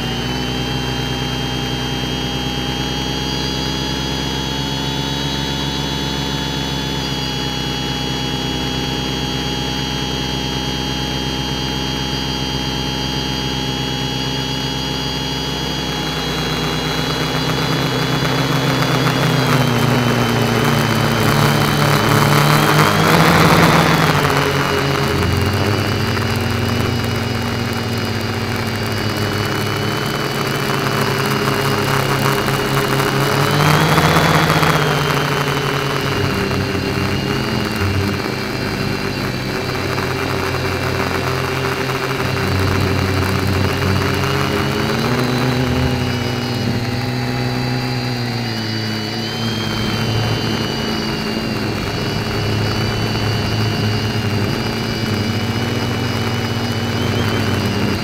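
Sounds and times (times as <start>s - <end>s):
quadcopter motors whining: 0.0s - 58.0s.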